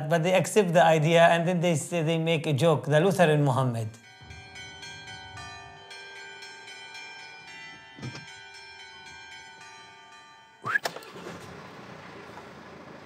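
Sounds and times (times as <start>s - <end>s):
bells ringing: 3.8s - 10.7s.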